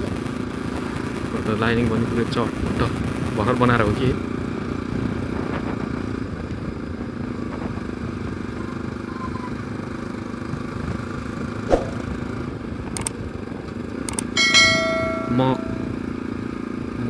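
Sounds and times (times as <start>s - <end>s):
road and wind noise: 0.0s - 17.0s
motorcycle engine running: 13.5s - 17.0s.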